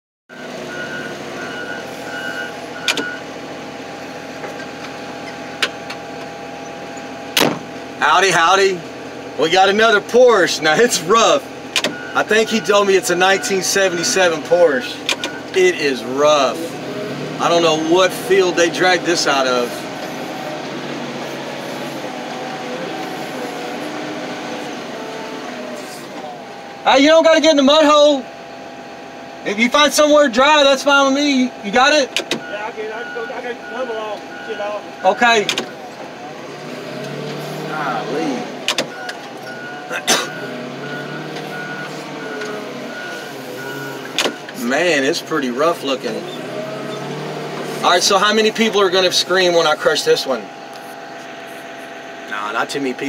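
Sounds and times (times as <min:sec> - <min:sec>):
reversing alarm beeps: 0:00.3 - 0:03.3, 0:11.8 - 0:14.1, 0:15.2 - 0:15.6, 0:32.4 - 0:36.0, 0:38.9 - 0:44.5
loader engine running: 0:00.3 - 0:53.0.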